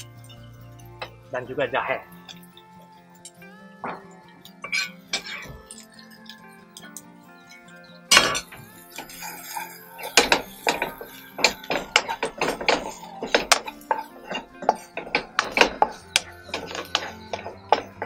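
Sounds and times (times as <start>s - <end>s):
faint background music: 0.0s - 18.0s
wooden spatula scraping a wok: 8.3s - 18.0s.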